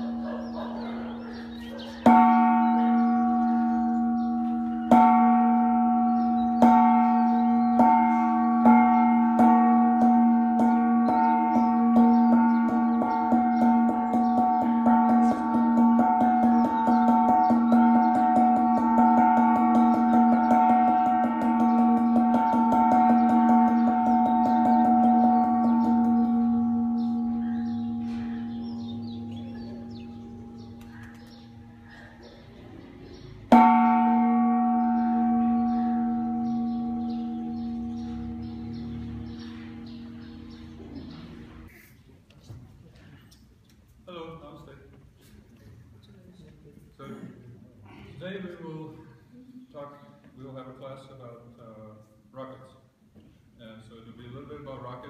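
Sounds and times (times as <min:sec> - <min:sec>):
gong struck with a mallet: 0:02.1 - 0:31.0.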